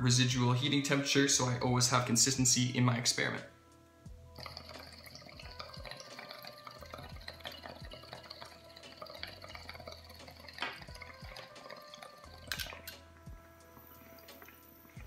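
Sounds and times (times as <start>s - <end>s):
water bubbling in glass pipe: 4.3s - 14.8s.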